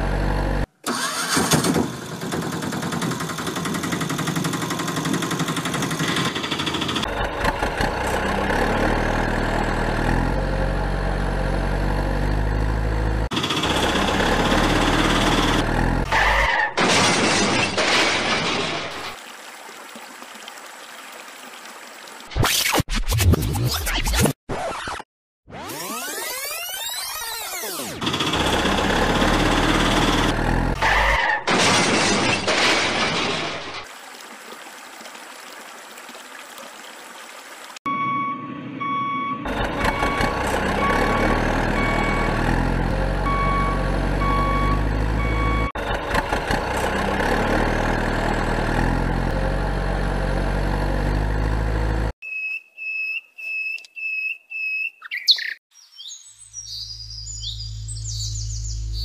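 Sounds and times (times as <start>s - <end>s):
engine low rumble: 0.0s - 1.0s, 7.0s - 16.1s, 37.9s - 52.2s, 56.9s - 59.0s
electronic beep: 37.9s - 41.1s.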